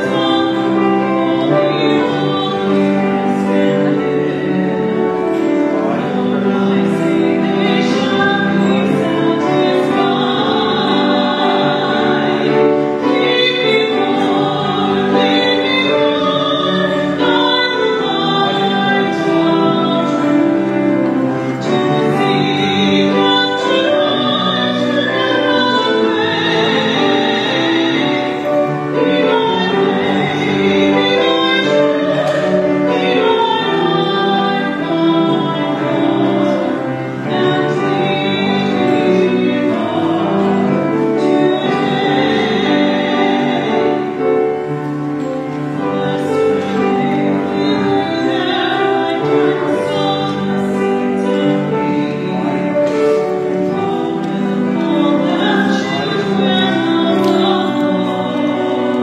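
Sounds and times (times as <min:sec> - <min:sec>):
instrumental accompaniment: 0:00.0 - 0:59.0
voices singing a hymn: 0:00.0 - 0:59.0.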